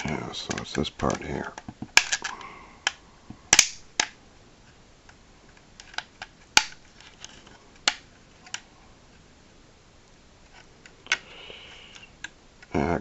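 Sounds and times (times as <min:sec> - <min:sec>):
plastic toy clicks and snaps: 0:01.9 - 0:04.2, 0:05.8 - 0:06.8, 0:07.8 - 0:08.6.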